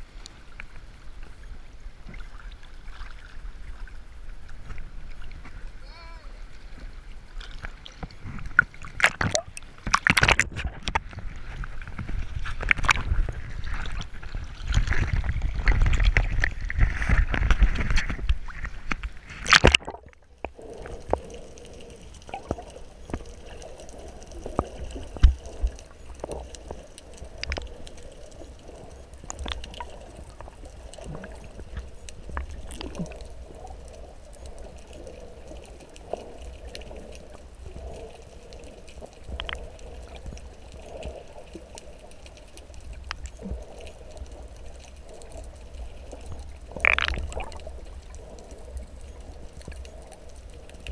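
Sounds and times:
muffled underwater rumble: 0:00.0 - 0:50.9
sea water splashing: 0:00.0 - 0:50.9
underwater clicks and pops: 0:07.4 - 0:21.4, 0:22.2 - 0:33.3, 0:39.2 - 0:41.2, 0:46.1 - 0:50.9.

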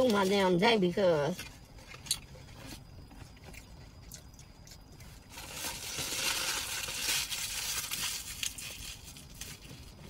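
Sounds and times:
paper wrapper crinkling: 0:05.3 - 0:10.0.

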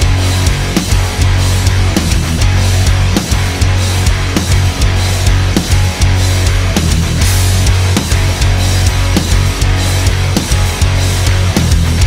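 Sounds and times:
heavy bass: 0:00.0 - 0:12.0
loud rock music: 0:00.0 - 0:12.0
steady drum beat: 0:00.0 - 0:12.0.

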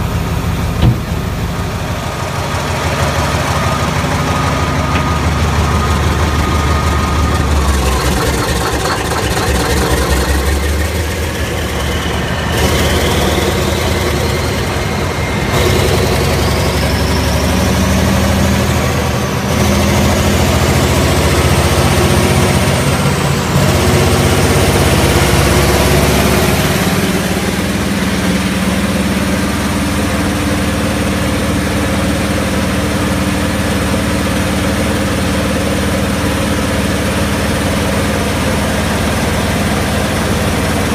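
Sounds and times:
high rising whine: 0:00.0 - 0:32.5
diesel engine running: 0:00.0 - 0:40.9.

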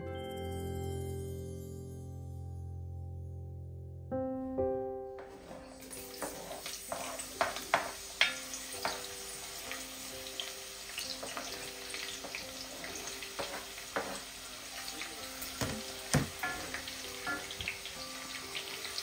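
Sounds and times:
wooden spoon scraping: 0:05.2 - 0:08.0, 0:12.2 - 0:14.3
onion sizzling in hot oil: 0:05.2 - 0:19.0.

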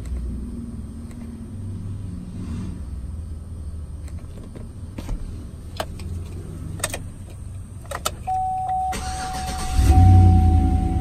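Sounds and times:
car engine cranking and running: 0:04.0 - 0:11.0
keys and ignition switch clicks: 0:05.7 - 0:08.9
steady electronic tone: 0:09.7 - 0:11.0.

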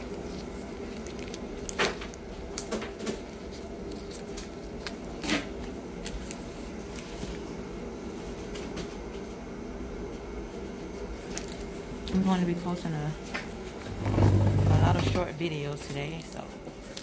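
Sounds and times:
handling rustles and clicks: 0:00.0 - 0:07.6
low room hum: 0:00.0 - 0:17.0.

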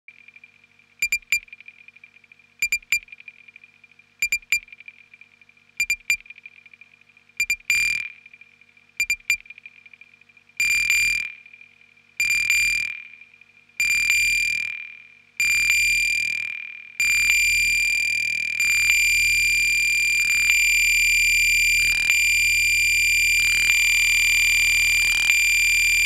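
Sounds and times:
drum machine clicky hits: 0:01.0 - 0:01.6, 0:02.6 - 0:03.1, 0:04.2 - 0:04.7, 0:05.8 - 0:06.4, 0:09.0 - 0:09.7.

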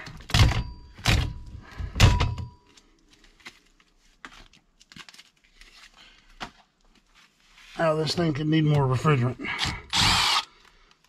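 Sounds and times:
faint clicks and rustles: 0:02.6 - 0:07.8.

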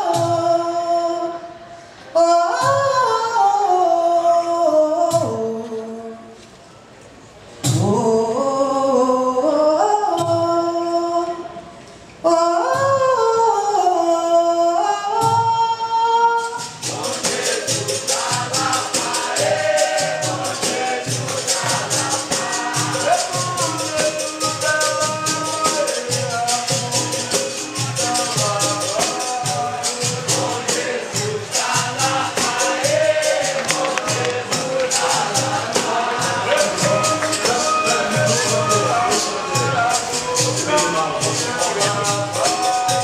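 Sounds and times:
solo voice singing: 0:00.0 - 0:06.4, 0:07.7 - 0:43.0
pandeiro and berimbau rhythm: 0:12.7 - 0:43.0
group of voices singing: 0:16.4 - 0:43.0.

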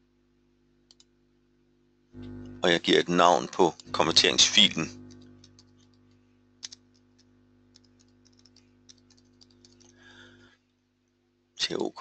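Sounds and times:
low electrical hum: 0:00.0 - 0:12.0
typing on computer keyboard: 0:05.1 - 0:06.0, 0:06.6 - 0:10.0.

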